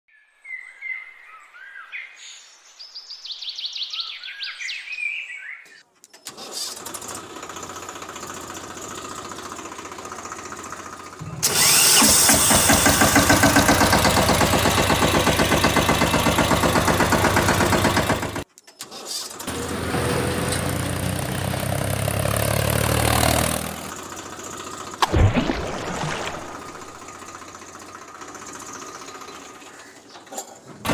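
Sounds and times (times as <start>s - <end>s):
tractor engine running: 6.3s - 18.5s, 19.4s - 30.9s.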